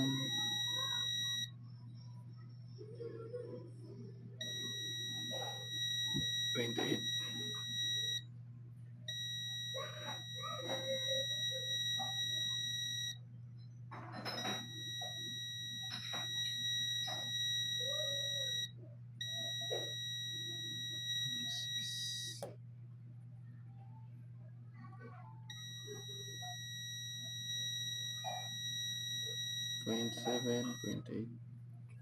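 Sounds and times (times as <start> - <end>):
multimeter continuity beep: 0.0 - 1.6, 4.4 - 8.3, 9.1 - 13.2, 14.2 - 22.5, 25.5 - 31.1
low steady hum: 0.0 - 32.0.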